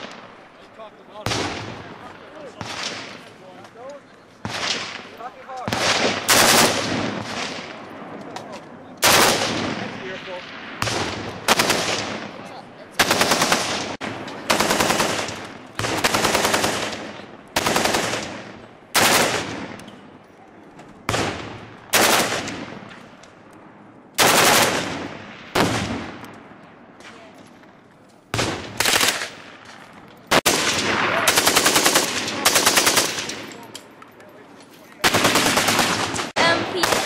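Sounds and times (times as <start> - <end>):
automatic rifle fire bursts: 5.7 - 7.6, 9.0 - 9.8, 10.8 - 12.2, 13.0 - 18.4, 19.0 - 19.6, 21.1 - 22.6, 24.2 - 26.0, 28.4 - 29.4, 30.3 - 33.4, 35.0 - 37.0.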